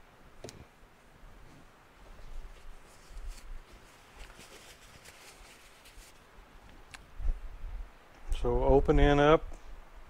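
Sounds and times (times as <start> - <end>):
faint handling sounds: 1.4 - 7.1.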